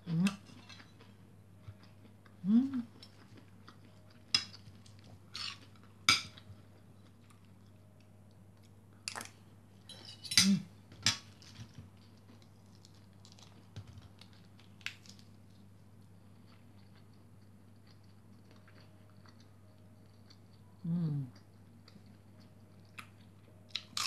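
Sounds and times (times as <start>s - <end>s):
cutlery clinking on a plate: 9.9s - 11.2s
chewing: 11.5s - 20.6s.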